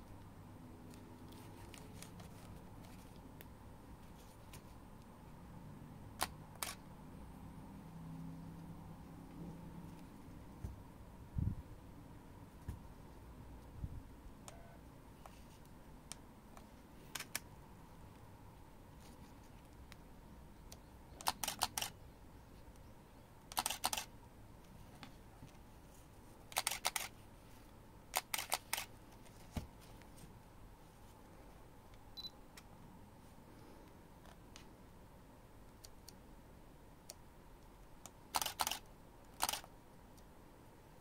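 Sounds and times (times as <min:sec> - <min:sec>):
camera shutter clicks: 0:06.2 - 0:06.8, 0:21.2 - 0:22.0, 0:23.5 - 0:24.1, 0:26.5 - 0:27.1, 0:28.2 - 0:28.9, 0:38.3 - 0:39.7.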